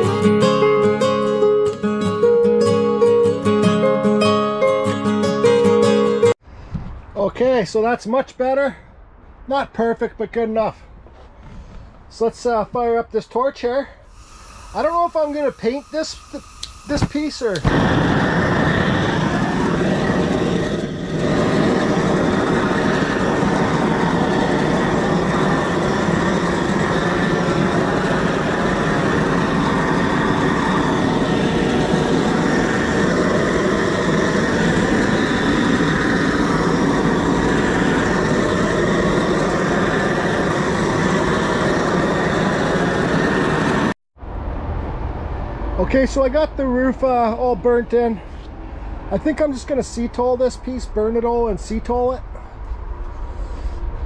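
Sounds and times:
gas torch flame rushing: 0:14.1 - 0:44.0.

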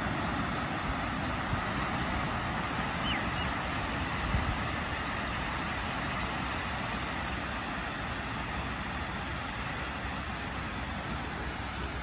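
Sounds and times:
surf washing: 0:00.0 - 0:12.0
wind rumbling on microphone: 0:00.5 - 0:05.0.

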